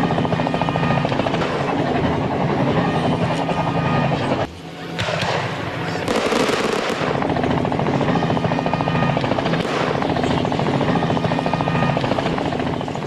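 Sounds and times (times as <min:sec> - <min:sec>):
engine with chopping beat: 0:06.1 - 0:13.0.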